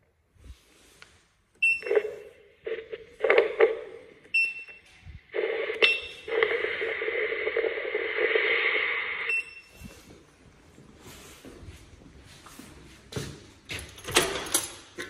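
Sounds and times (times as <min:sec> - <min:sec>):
speaker hissing rush: 0:05.3 - 0:09.3
short high beeps: 0:05.8 - 0:06.9.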